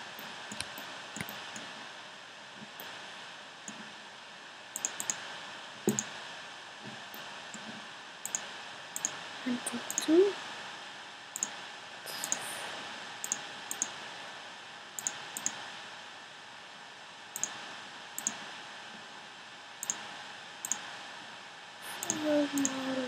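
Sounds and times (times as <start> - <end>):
steady background hiss: 0.0 - 23.0
computer mouse clicks: 0.5 - 1.7, 4.8 - 5.2, 8.2 - 9.2, 11.4 - 11.6, 12.2 - 12.4, 13.2 - 14.0, 15.0 - 15.6, 17.4 - 17.6, 18.2 - 18.4, 19.8 - 20.0, 20.6 - 20.8, 22.0 - 22.8.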